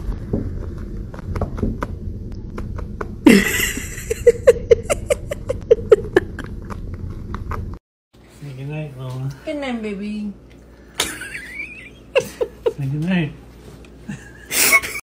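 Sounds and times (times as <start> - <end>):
low rumble of handling noise: 0.0 - 9.3
person laughing: 3.2 - 6.7, 11.0 - 12.9, 14.1 - 15.0.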